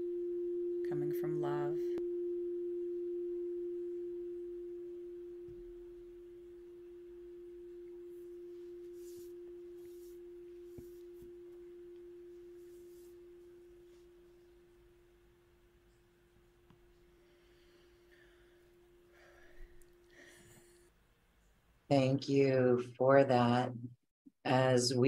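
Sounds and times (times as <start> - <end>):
crystal singing bowl ringing: 0.0 - 20.8.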